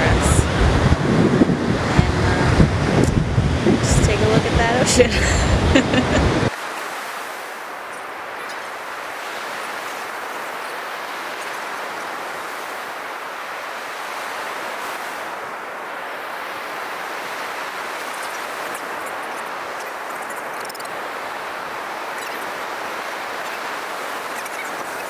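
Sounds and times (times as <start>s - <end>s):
surf breaking on beach: 0.0s - 25.0s.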